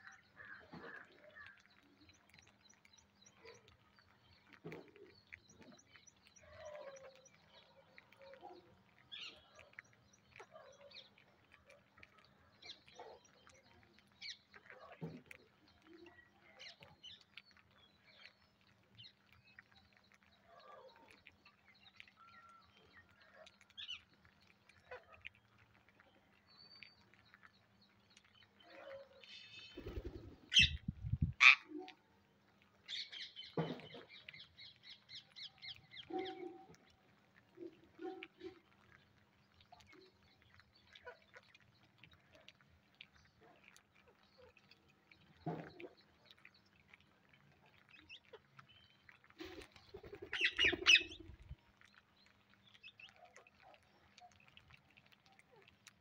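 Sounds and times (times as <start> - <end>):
beaks pecking at grain: 0.0 - 56.0
parakeets chirping and squawking: 29.7 - 31.6, 50.3 - 51.4.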